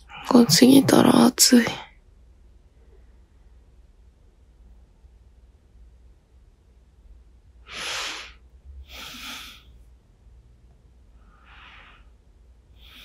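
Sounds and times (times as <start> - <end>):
person breathing out heavily: 7.7 - 9.6.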